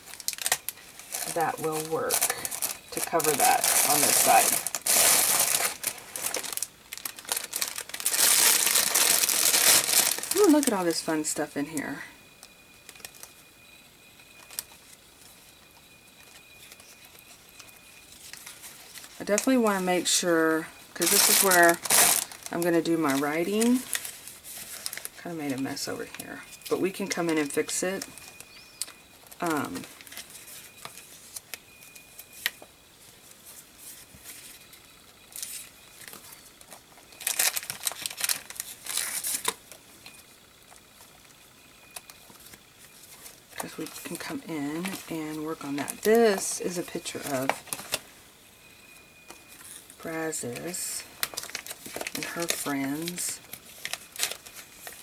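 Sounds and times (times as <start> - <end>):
paper rustling: 0.0 - 10.8, 21.0 - 27.6, 32.4 - 39.6, 50.5 - 55.0.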